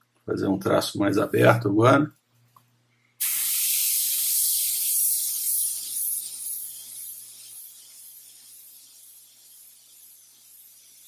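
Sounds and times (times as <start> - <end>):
airbrush spraying hiss: 3.2 - 11.0.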